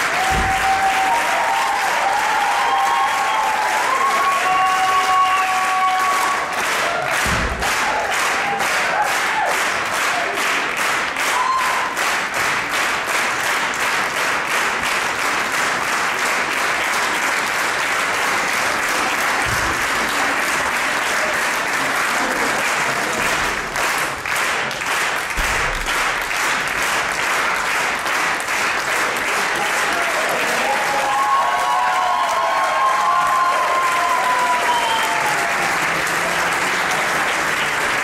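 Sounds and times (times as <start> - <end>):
audience applauding: 0.0 - 38.0.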